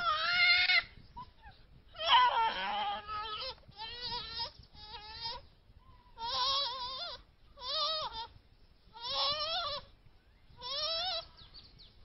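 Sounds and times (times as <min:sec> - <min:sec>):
monkey calling: 0:06.2 - 0:08.3, 0:09.0 - 0:09.9, 0:10.6 - 0:11.3.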